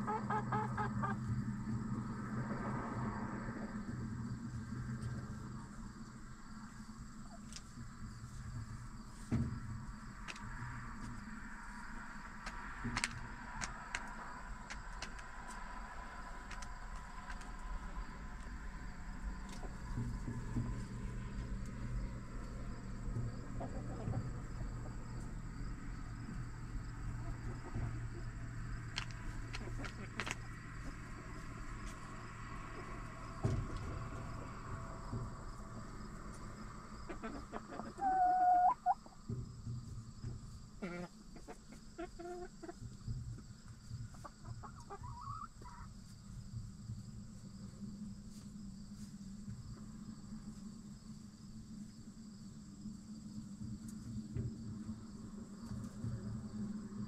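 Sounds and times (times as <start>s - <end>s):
hens clucking and calling: 0.0s - 1.4s, 23.4s - 25.5s, 26.2s - 34.0s, 36.6s - 39.4s, 40.8s - 43.0s, 44.1s - 46.1s.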